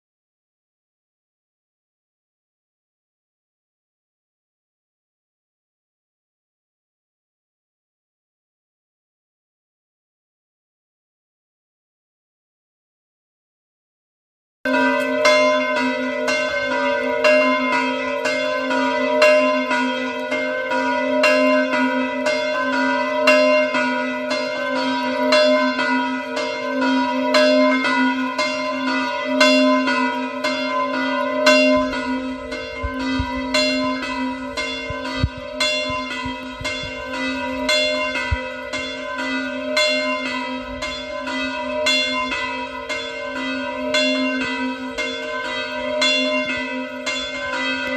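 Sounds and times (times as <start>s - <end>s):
church bells pealing: 14.7s - 47.9s.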